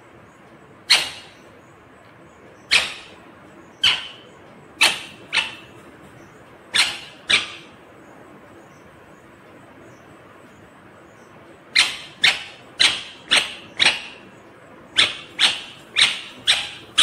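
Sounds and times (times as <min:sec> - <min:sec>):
parakeet squawking: 0:00.9 - 0:01.4, 0:02.7 - 0:03.2, 0:03.8 - 0:05.8, 0:06.7 - 0:07.7, 0:11.8 - 0:14.3, 0:15.0 - 0:17.0.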